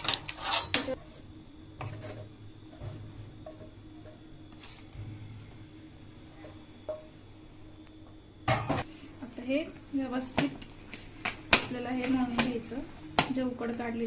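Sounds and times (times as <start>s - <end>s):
scraping in metal frying pan: 0.1s - 1.0s.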